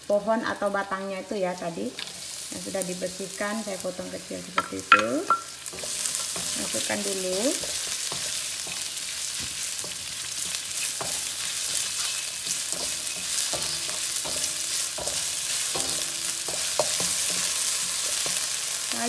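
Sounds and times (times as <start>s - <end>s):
vegetables sizzling in hot oil: 0.0s - 19.0s
wooden spatula scraping wok: 5.6s - 18.8s.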